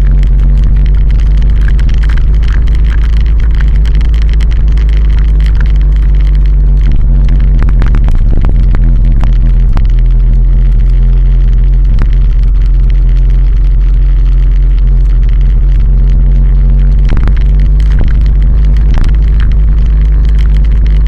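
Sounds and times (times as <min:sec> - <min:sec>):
vehicle wind and road rumble: 0:00.0 - 0:21.0.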